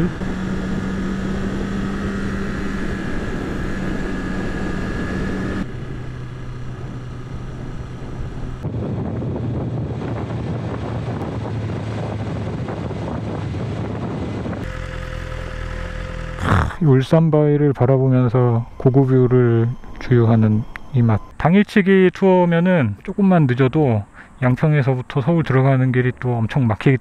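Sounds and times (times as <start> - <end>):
motorcycle engine cruising: 0.0 - 21.3
wind and road noise: 0.0 - 27.0.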